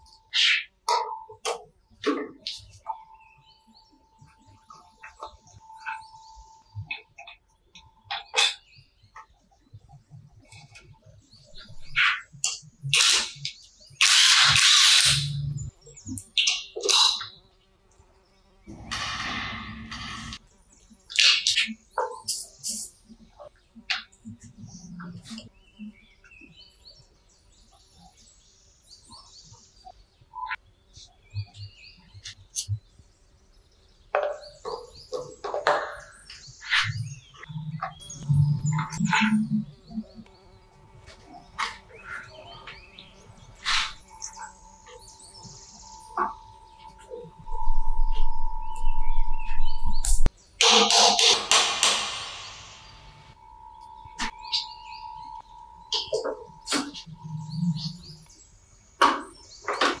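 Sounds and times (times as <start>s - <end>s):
impact driver hammering: 50.6s - 52.7s.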